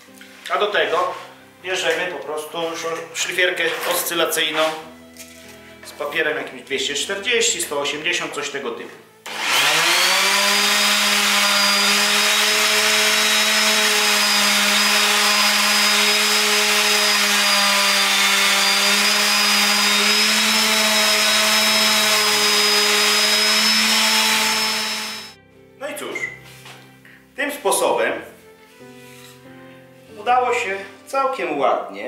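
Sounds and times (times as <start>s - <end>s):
orbital sander humming: 9.3s - 25.4s.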